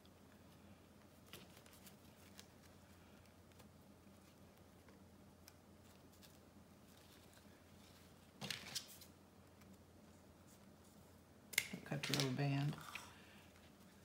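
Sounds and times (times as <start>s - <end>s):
fabric and ribbon rustling: 0.4s - 5.0s, 5.7s - 11.2s.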